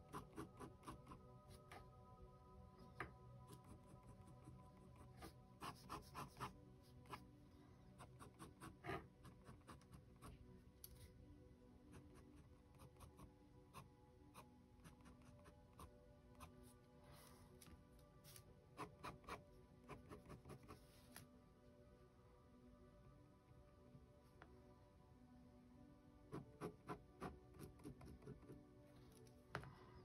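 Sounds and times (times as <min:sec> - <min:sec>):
pen scratching on paper: 0:00.0 - 0:01.2, 0:03.5 - 0:07.2, 0:08.0 - 0:10.4, 0:18.8 - 0:20.9, 0:26.3 - 0:28.6.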